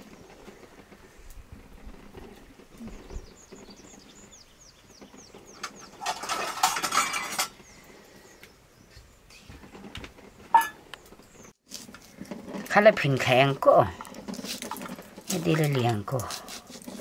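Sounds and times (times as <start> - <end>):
metal dishes clattering: 5.6 - 7.6, 10.5 - 10.8.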